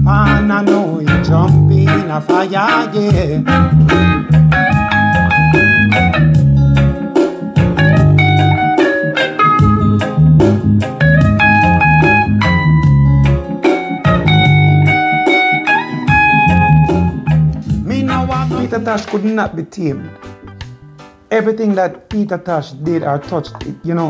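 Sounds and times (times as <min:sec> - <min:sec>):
deep bass line: 0:00.0 - 0:02.2, 0:03.0 - 0:08.8, 0:09.5 - 0:15.2, 0:16.1 - 0:19.0
electric guitar melody: 0:00.0 - 0:21.3
drums: 0:00.1 - 0:19.5.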